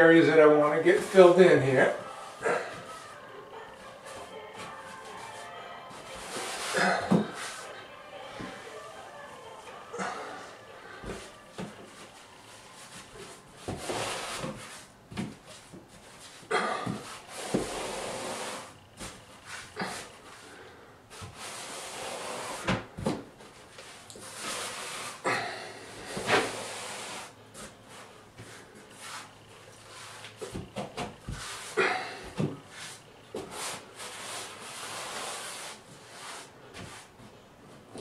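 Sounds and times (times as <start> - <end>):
grout float scraping tile: 32.7 - 36.5.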